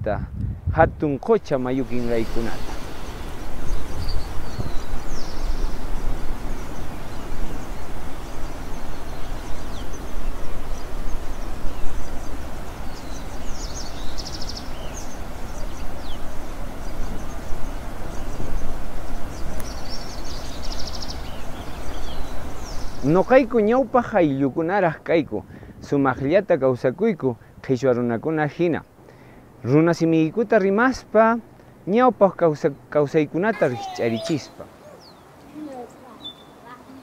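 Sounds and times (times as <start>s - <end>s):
rushing background noise: 1.2s - 24.5s
small birds chirping: 1.2s - 37.0s.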